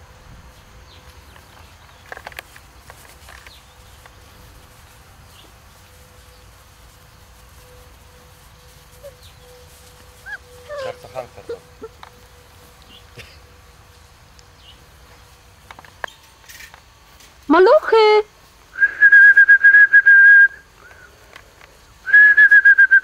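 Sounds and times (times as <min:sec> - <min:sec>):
puppies yelping and squealing: 0:08.8 - 0:12.8.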